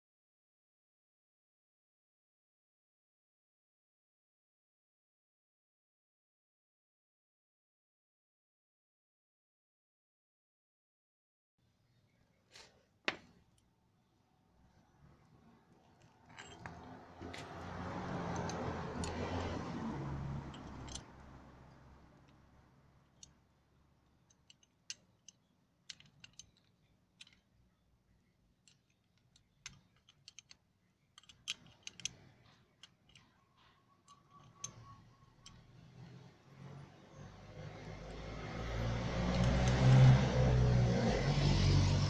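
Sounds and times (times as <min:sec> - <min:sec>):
spanner clicking on metal nut: 0:17.4 - 0:19.4, 0:20.5 - 0:21.2, 0:24.1 - 0:27.5, 0:28.6 - 0:36.2.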